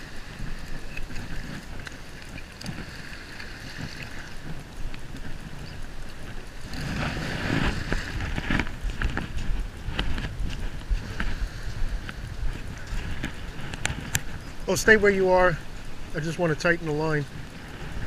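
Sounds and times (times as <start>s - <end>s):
wind buffeting microphone: 0.0s - 18.0s
footsteps crunching on wet sand: 7.0s - 14.7s.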